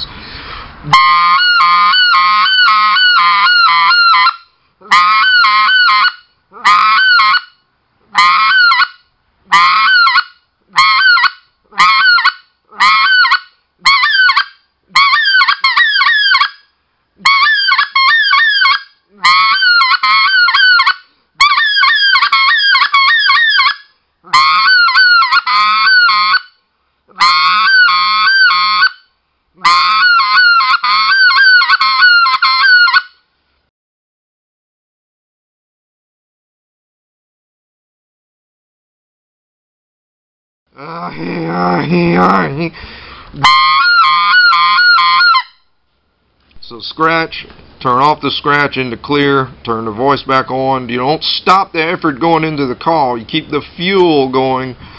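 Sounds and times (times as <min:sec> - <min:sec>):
goose call blown loudly: 0:00.9 - 0:07.6, 0:08.2 - 0:16.6, 0:17.2 - 0:33.2, 0:43.4 - 0:45.6.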